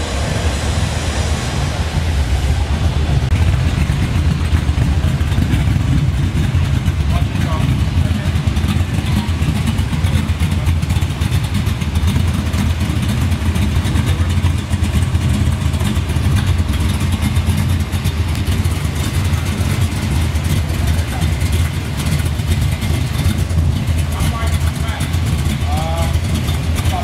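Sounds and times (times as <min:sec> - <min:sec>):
car engine running at low speed: 0:00.0 - 0:27.0.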